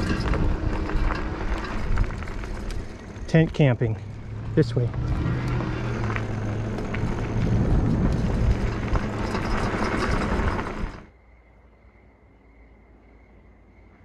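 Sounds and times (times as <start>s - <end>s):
tyres crunching on gravel: 0.0s - 11.1s
wind rushing over microphone: 0.0s - 11.1s.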